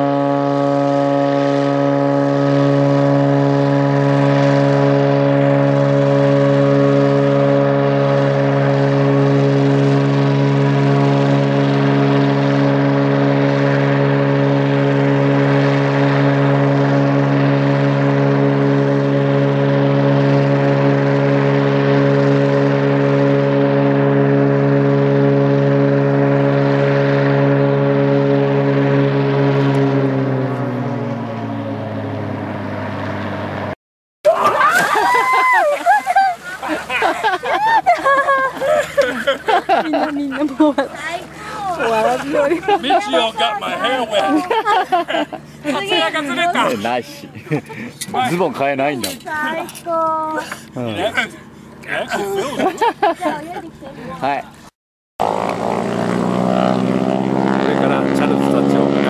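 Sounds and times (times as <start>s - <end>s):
plane engine droning: 0.0s - 59.0s.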